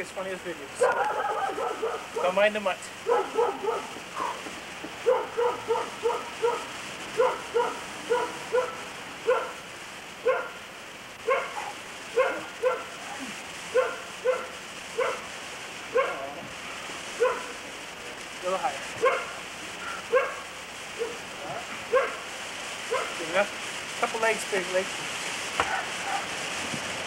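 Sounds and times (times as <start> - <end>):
dog barking: 0.8 - 2.4, 3.0 - 4.4, 5.0 - 9.6, 10.2 - 10.6, 11.2 - 15.3, 15.9 - 16.4, 17.2 - 17.6, 19.0 - 19.4, 20.0 - 21.2, 21.9 - 22.3, 22.9 - 23.2, 25.6 - 26.3.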